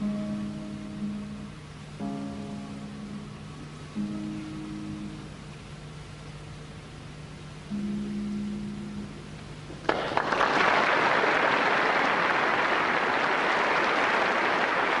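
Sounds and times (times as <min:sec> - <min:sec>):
soft orchestral chord: 0:00.0 - 0:05.6
audience applauding: 0:09.8 - 0:15.0.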